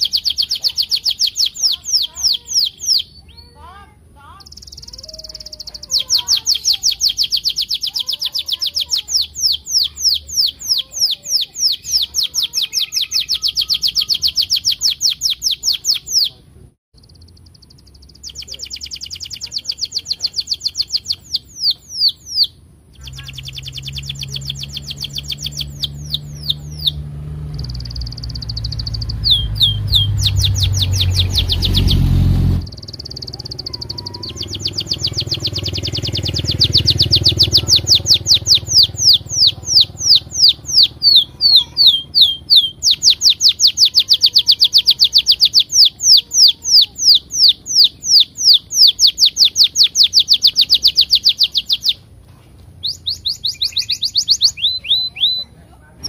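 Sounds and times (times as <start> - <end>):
canary singing chirps and trills: 0.0 - 56.0.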